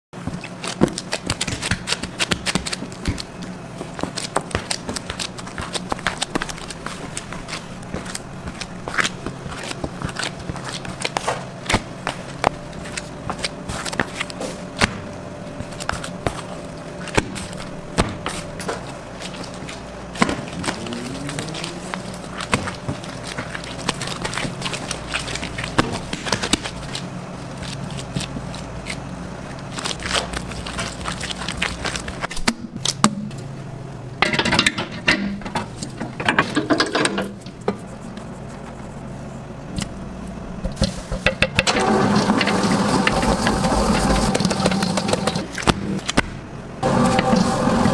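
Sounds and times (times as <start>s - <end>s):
machine hum: 5.8s - 26.2s, 41.6s - 47.9s
stand mixer running: 41.7s - 45.5s, 46.8s - 47.9s.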